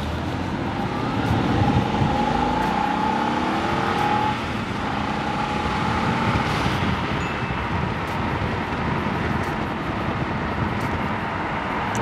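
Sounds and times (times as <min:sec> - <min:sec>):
car engine accelerating: 0:00.0 - 0:07.1
road noise: 0:00.0 - 0:12.0.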